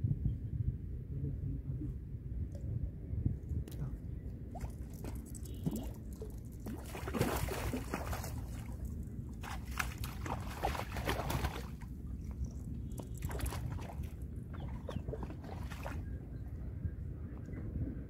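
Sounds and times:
wind on microphone: 0.0s - 18.0s
water splashing and sloshing: 3.6s - 16.7s.

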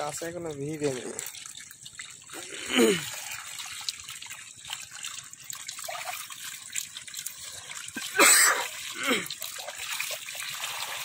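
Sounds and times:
shallow water trickling and splashing: 0.0s - 11.0s.

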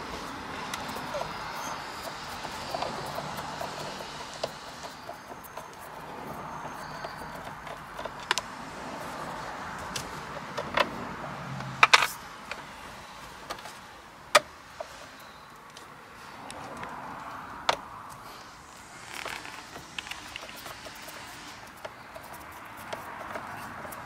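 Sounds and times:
screwdriver clicking on screws: 0.0s - 8.5s.

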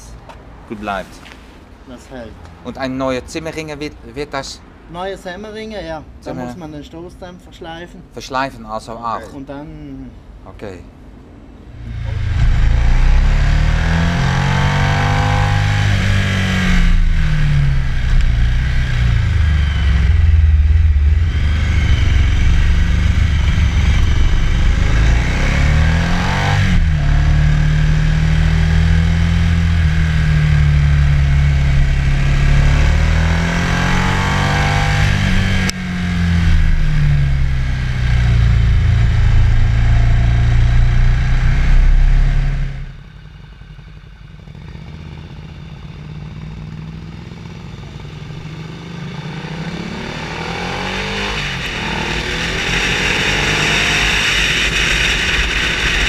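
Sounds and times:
wind and road noise: 0.0s - 56.0s
motorcycle engine running: 11.8s - 56.0s.

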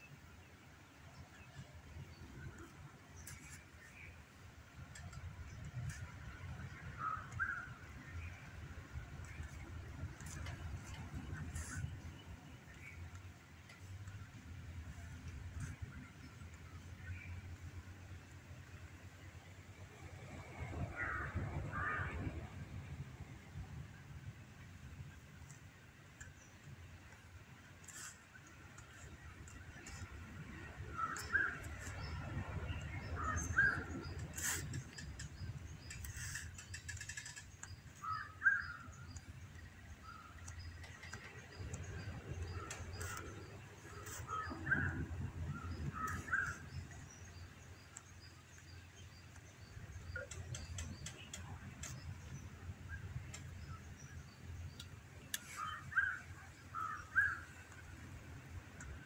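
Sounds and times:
low steady rumble: 0.0s - 59.0s
birds calling: 26.2s - 58.1s.

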